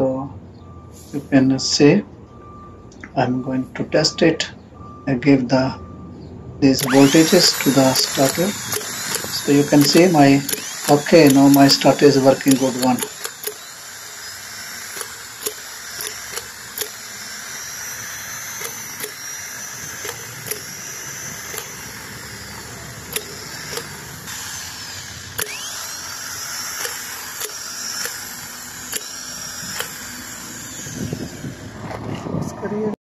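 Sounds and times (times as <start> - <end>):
starter motor whining: 6.6 - 33.0.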